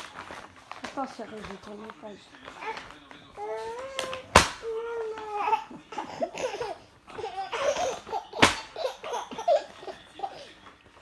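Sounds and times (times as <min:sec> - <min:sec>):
hand slapping magazine page: 0:00.0 - 0:05.6, 0:07.8 - 0:10.0
baby laughing: 0:03.4 - 0:10.5.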